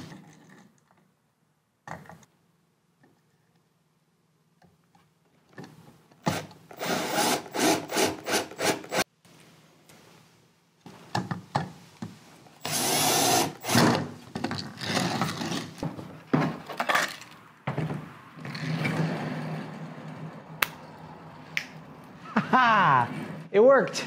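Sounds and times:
cordless drill driving screws: 6.2s - 9.0s, 12.6s - 14.1s.

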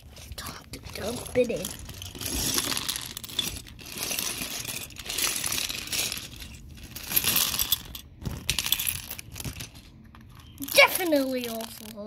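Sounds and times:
plastic bricks clattering on floor: 0.8s - 12.0s.

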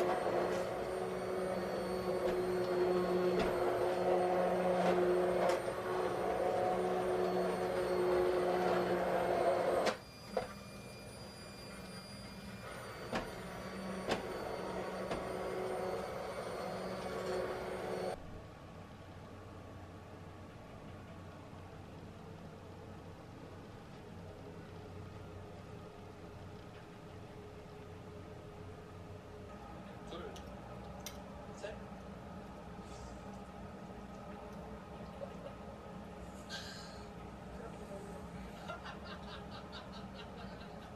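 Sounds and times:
immersion blender motor hum: 0.0s - 9.8s.

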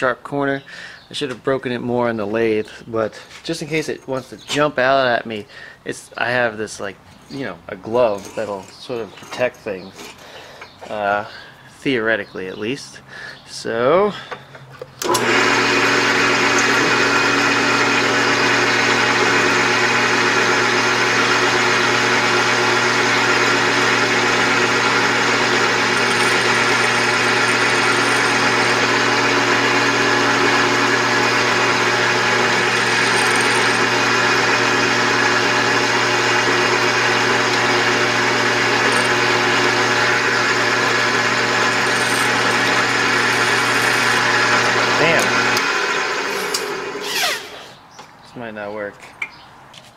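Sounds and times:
drill press motor hum: 15.0s - 47.7s
drill bit grinding metal: 15.0s - 47.8s.

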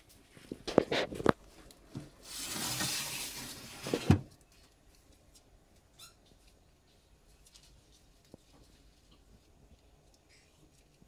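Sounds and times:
glass door scraping open: 2.2s - 4.2s.

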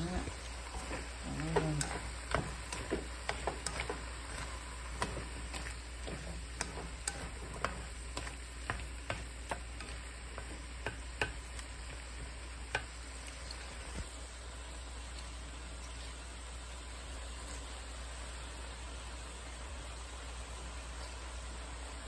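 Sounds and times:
food sizzling in a wok: 0.0s - 22.0s
chopsticks clicking against pan: 0.7s - 13.0s.

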